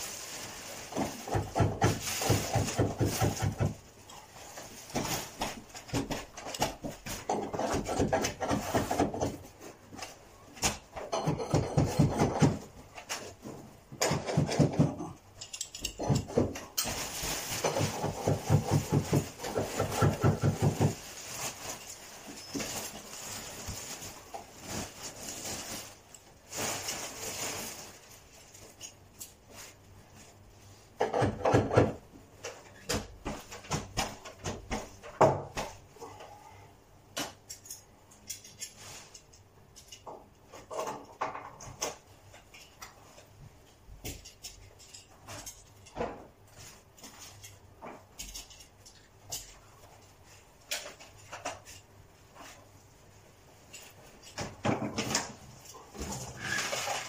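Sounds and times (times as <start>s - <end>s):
hand tools knocking and clattering: 1.0s - 3.8s, 10.6s - 13.2s, 13.9s - 17.0s, 17.6s - 21.0s.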